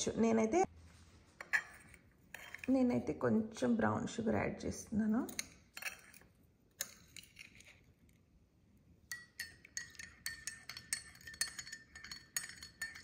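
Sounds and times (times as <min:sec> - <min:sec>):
spoon clinking in ceramic mug: 0:09.1 - 0:13.0.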